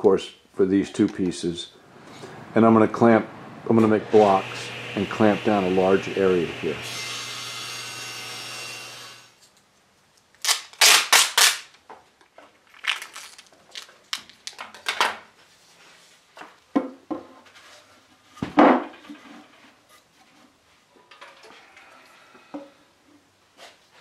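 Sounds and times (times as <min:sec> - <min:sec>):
table saw motor: 0:01.9 - 0:09.3
packing tape ripping off roll: 0:10.4 - 0:11.8, 0:12.7 - 0:14.9
tape handling: 0:12.7 - 0:14.9.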